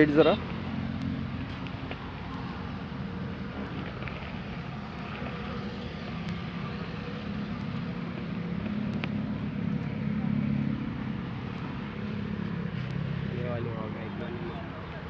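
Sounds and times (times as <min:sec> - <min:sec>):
low engine hum: 0:00.0 - 0:15.0
outdoor background noise: 0:00.0 - 0:15.0
faint clicks: 0:08.6 - 0:09.2.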